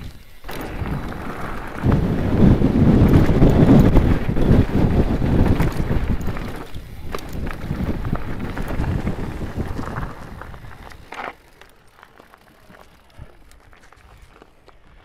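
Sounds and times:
wind buffeting microphone: 0:00.0 - 0:11.2
bike rolling on gravel: 0:00.0 - 0:15.0.

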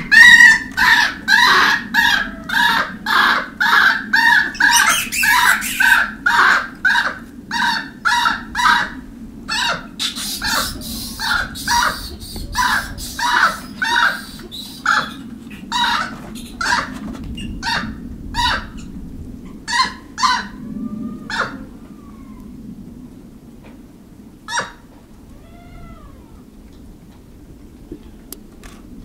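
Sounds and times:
monkeys making harsh calls: 0:00.0 - 0:08.9, 0:09.5 - 0:17.0, 0:19.7 - 0:22.4
monkey coo calls: 0:00.0 - 0:18.9, 0:19.7 - 0:22.5, 0:24.5 - 0:26.5.

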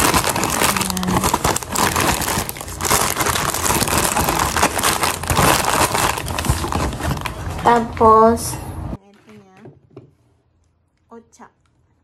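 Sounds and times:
plastic packets crinkling: 0:00.0 - 0:07.9.

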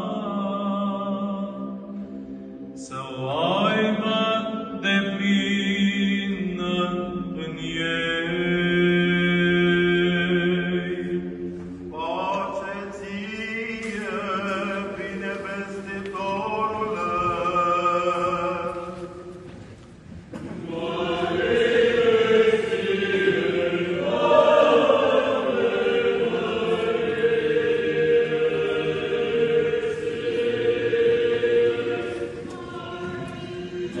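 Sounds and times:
choir singing: 0:00.0 - 0:19.5, 0:20.4 - 0:34.0.

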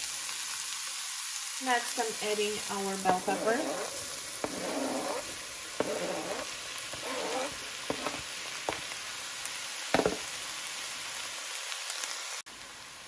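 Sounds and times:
onions sizzling in oil: 0:00.0 - 0:13.0
knife scraping cutting board: 0:03.0 - 0:09.0, 0:10.0 - 0:10.3
knife knocking against pan: 0:10.0 - 0:10.3.

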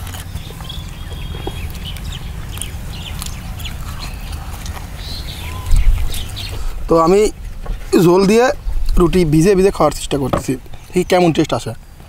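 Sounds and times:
man chewing food: 0:00.0 - 0:08.0
bird calls: 0:00.0 - 0:11.8
steady low rumble: 0:00.0 - 0:12.0.

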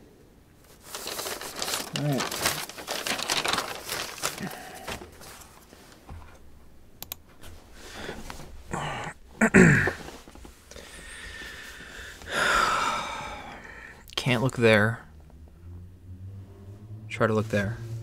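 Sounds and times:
papers rustling: 0:00.6 - 0:06.4
person grunting: 0:08.7 - 0:10.1, 0:12.3 - 0:13.7.

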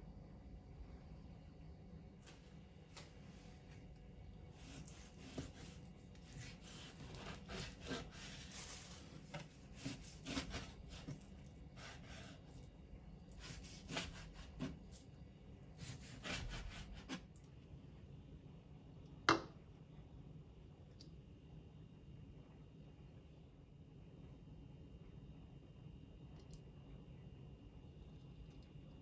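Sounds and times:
knife cutting on cutting board: 0:04.6 - 0:12.7, 0:13.3 - 0:15.0, 0:15.8 - 0:17.3.

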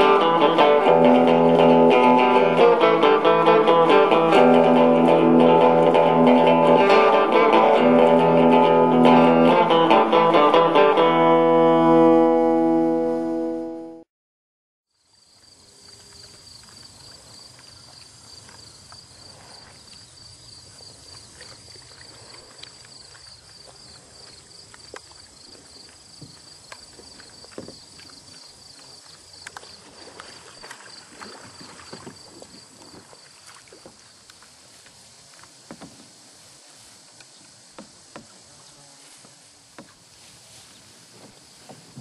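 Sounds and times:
guitar music: 0:00.0 - 0:14.1
insects chorus: 0:14.9 - 0:42.0
faint knocks and rustles: 0:22.2 - 0:42.0.

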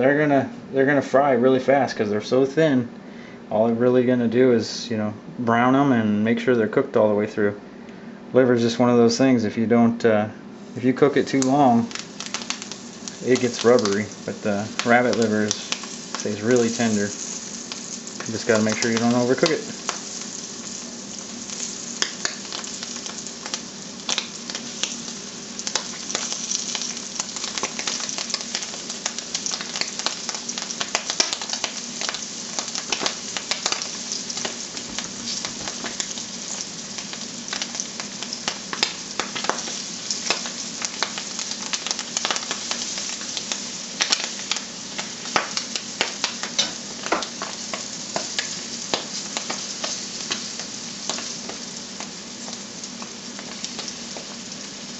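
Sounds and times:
livers sizzling in hot oil: 0:10.6 - 0:54.9
oil popping and crackling: 0:11.2 - 0:54.9.

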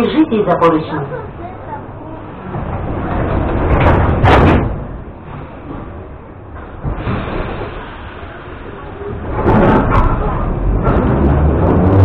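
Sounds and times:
metro car rumble: 0:00.0 - 0:12.0
sliding doors closing bang: 0:02.4 - 0:12.0.

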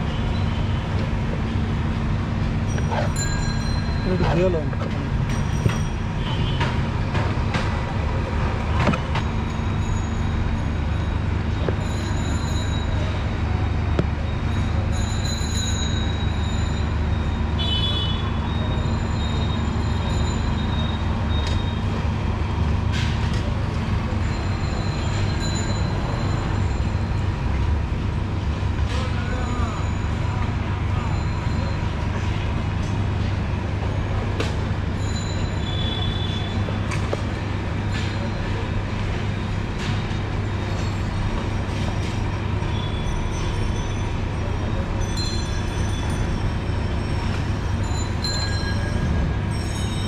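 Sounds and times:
street traffic noise: 0:00.0 - 0:50.0.

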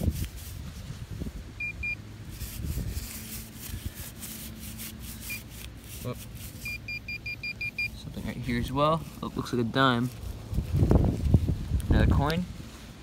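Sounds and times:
grass rustling against probe: 0:00.0 - 0:13.0
metal detector pinpointer beeps: 0:01.6 - 0:02.0, 0:06.6 - 0:08.0.

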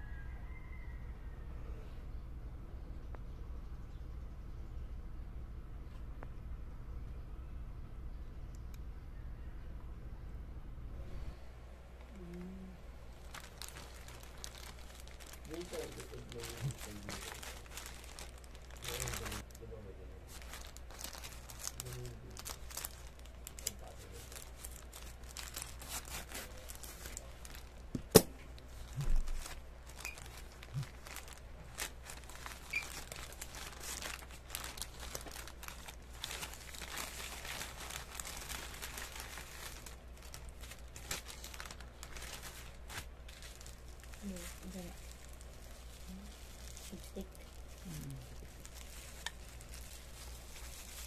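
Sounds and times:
plastic bag crinkling and tearing: 0:13.1 - 0:51.0.

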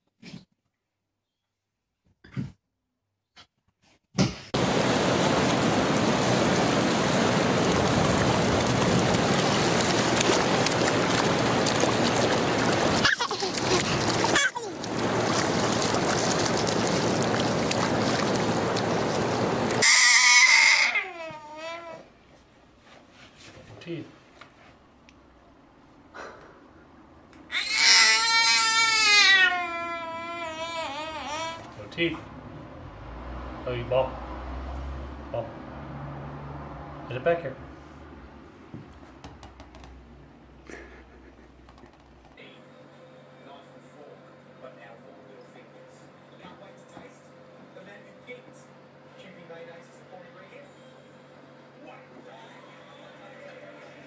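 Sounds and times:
ocean surf breaking: 0:04.6 - 0:19.8
baby squealing: 0:13.0 - 0:14.8, 0:19.8 - 0:22.1, 0:27.5 - 0:31.7.

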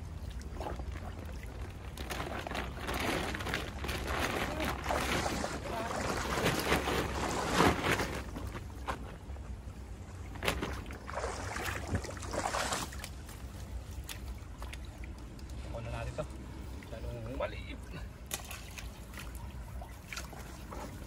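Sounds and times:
net rustling: 0:01.8 - 0:09.2
stream running over stones: 0:10.3 - 0:21.0
splashes in water: 0:10.4 - 0:16.9, 0:18.1 - 0:21.0.

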